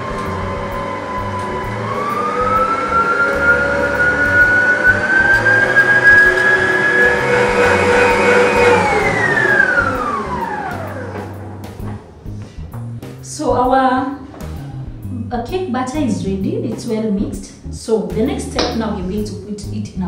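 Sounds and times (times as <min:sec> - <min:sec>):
stand mixer motor whining: 0:00.0 - 0:12.1.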